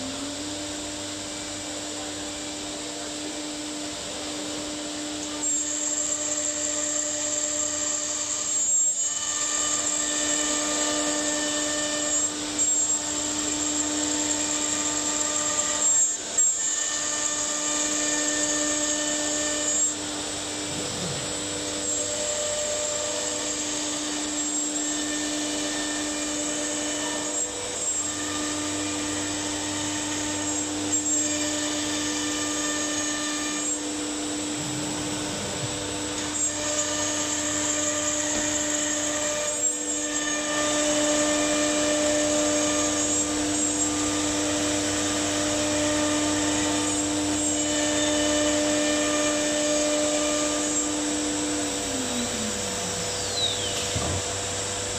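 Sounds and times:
router spindle whine: 0.0s - 54.9s
machine hum: 16.6s - 54.9s.

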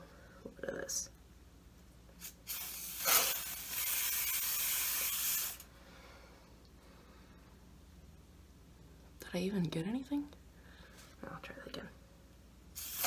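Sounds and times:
aerosol spray hissing: 2.2s - 5.7s, 12.8s - 13.0s.

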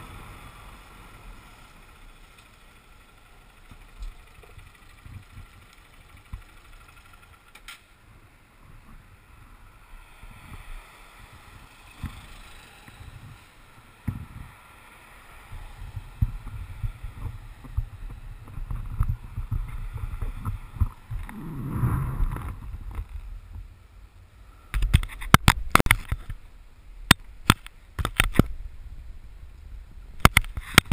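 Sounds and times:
motorcycle engine rumble: 0.0s - 30.9s
rushing wind noise: 8.2s - 23.8s.

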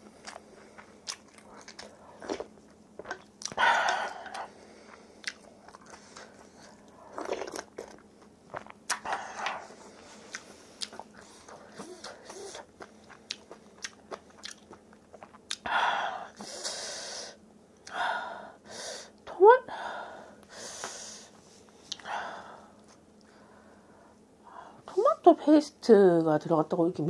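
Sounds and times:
chewing and crunching food: 0.0s - 15.7s
wet mouth clicks: 10.3s - 15.7s.

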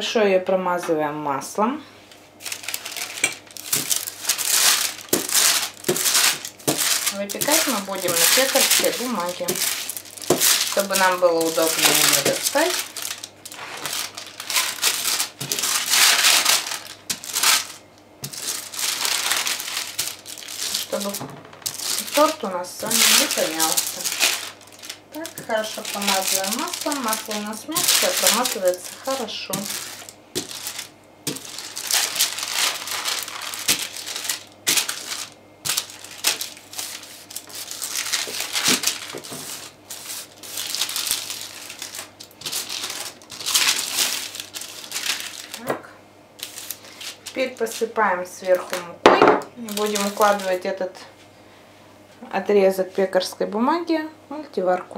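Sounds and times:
baking paper rustling and crinkling: 2.0s - 51.0s.

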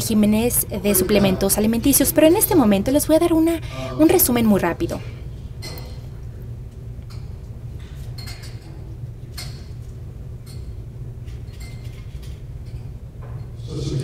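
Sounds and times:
low room hum: 0.0s - 14.0s
light clinks of dishes: 5.6s - 6.1s, 7.1s - 9.8s, 10.4s - 13.6s.

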